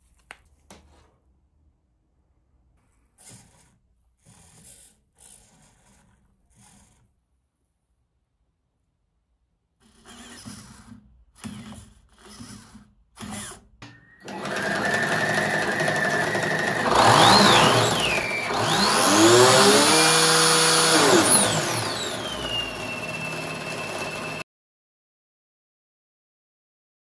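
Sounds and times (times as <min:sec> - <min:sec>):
electric motor whining: 0:14.2 - 0:24.4
servo whirring: 0:14.2 - 0:24.4.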